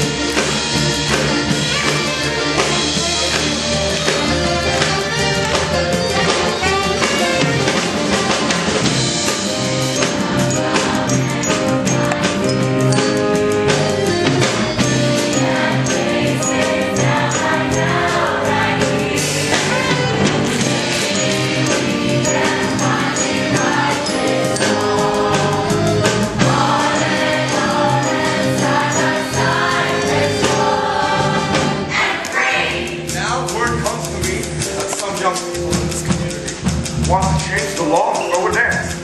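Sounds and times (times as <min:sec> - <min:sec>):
ensemble singing with band: 0:09.5 - 0:33.2.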